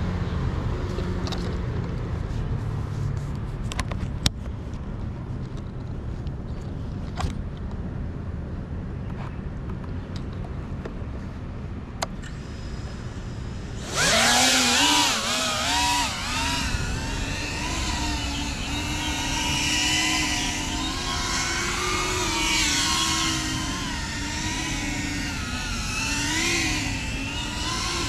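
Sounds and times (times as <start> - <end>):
drone motors whining: 12.2 - 28.0.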